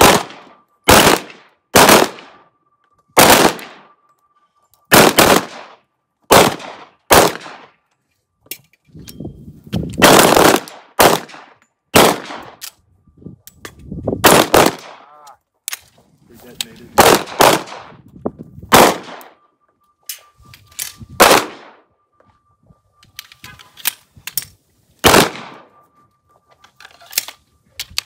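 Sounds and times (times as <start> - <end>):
pistol shots with echo: 0.0 - 2.5, 3.2 - 4.0, 4.9 - 7.8, 10.0 - 12.6, 14.2 - 15.1, 17.0 - 17.9, 18.7 - 19.4, 21.2 - 21.9, 25.0 - 25.8.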